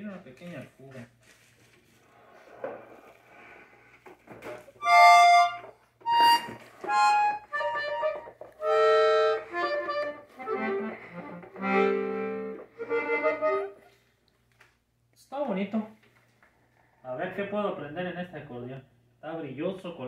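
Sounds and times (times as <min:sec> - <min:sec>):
accordion chords and notes: 0:04.8 - 0:14.0.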